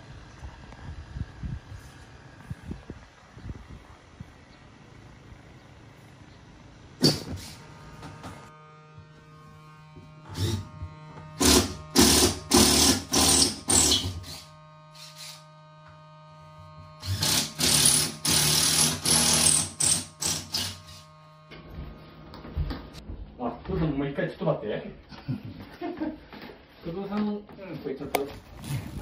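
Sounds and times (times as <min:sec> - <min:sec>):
power drill-driver bursts: 0:11.4 - 0:15.5, 0:17.0 - 0:21.1.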